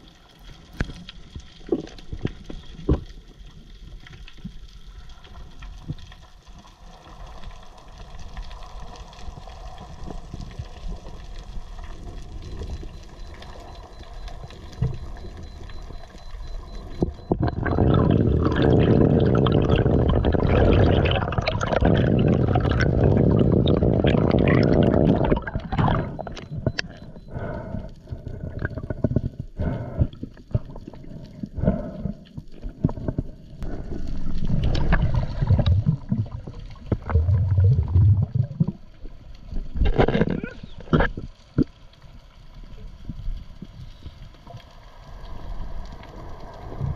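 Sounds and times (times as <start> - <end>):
rush of water and bubbles: 0.0 - 46.9
water splashes: 12.5 - 27.2, 32.6 - 42.0.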